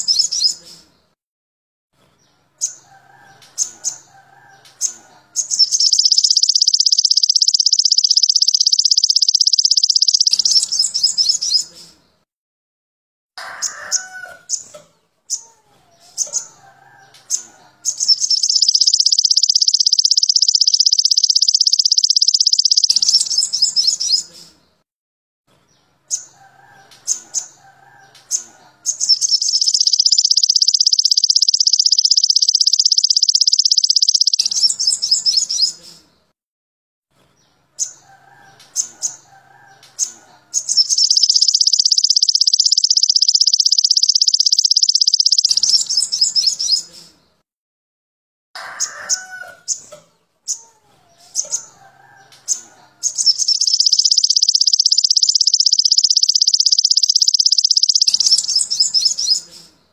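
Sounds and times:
sunbird chirps and fast trill: 0:00.0 - 0:00.8, 0:02.6 - 0:11.8, 0:16.2 - 0:24.3, 0:26.1 - 0:35.8, 0:37.8 - 0:46.9, 0:51.4 - 0:59.6
faint lower bird chirps: 0:00.0 - 0:01.1, 0:02.6 - 0:12.0, 0:13.6 - 0:24.5, 0:26.1 - 0:36.1, 0:37.8 - 0:47.2, 0:50.5 - 0:59.9.

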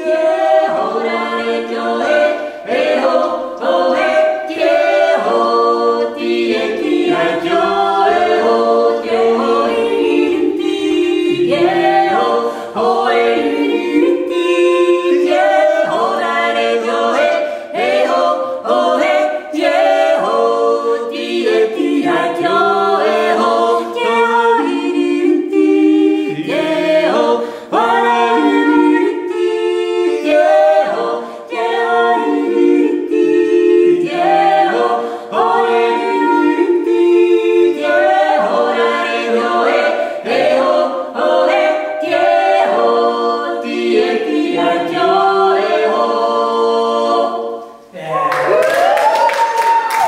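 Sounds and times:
voices yodelling in harmony: 0:48.0 - 0:50.0.

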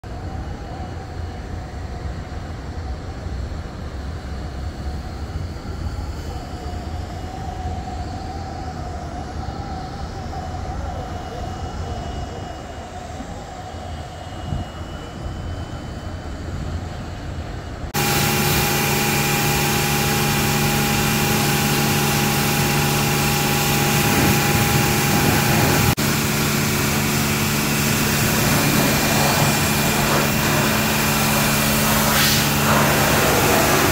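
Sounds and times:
low outdoor rumble: 0:16.2 - 0:33.9
car wash motor humming: 0:17.8 - 0:33.9.

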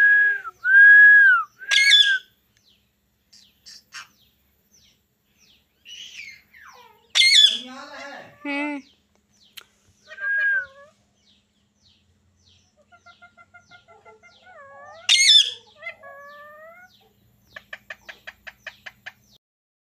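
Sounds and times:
parakeets calling: 0:01.6 - 0:02.3, 0:03.2 - 0:19.4
parakeet squawk: 0:01.7 - 0:02.2, 0:06.0 - 0:08.4, 0:13.6 - 0:17.0.

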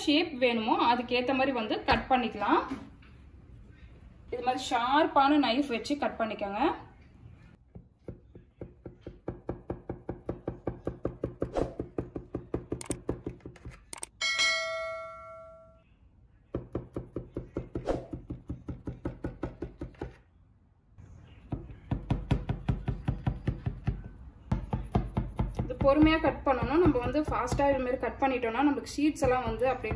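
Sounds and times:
notification bell chime: 0:14.2 - 0:15.8.

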